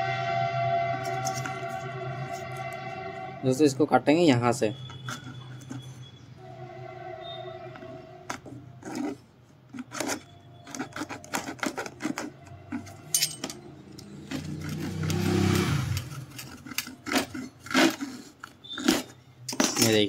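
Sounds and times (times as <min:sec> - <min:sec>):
hacksaw rasping through plastic: 0:08.2 - 0:20.0.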